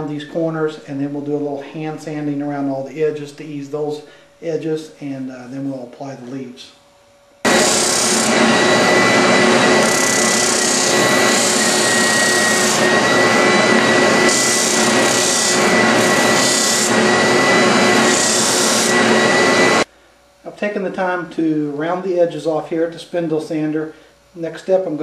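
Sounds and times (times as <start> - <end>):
spindle sander whining: 7.4 - 19.9
wood rasping against sanding drum: 7.5 - 19.0.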